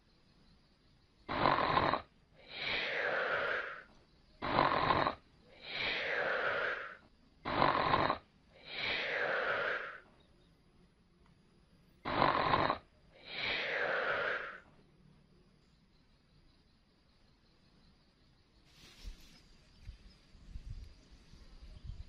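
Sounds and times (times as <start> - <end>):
person snoring: 1.3 - 10.0, 12.1 - 14.7.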